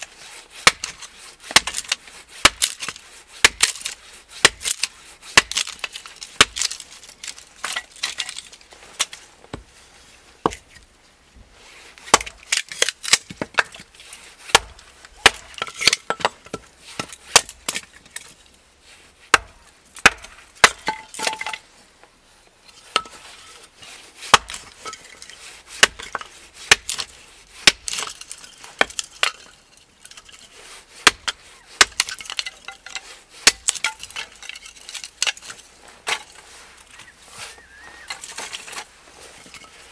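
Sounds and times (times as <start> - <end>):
hatchet chopping kindling: 0.6 - 8.4, 12.1 - 13.9, 14.5 - 17.9, 19.3 - 21.6, 24.3 - 25.1, 25.8 - 29.5, 31.0 - 36.4.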